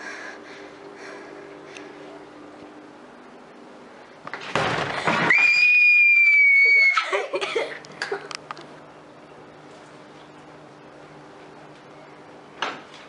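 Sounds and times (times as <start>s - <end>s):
knocks and rustles: 4.2s - 5.4s
girl screaming: 5.3s - 7.3s.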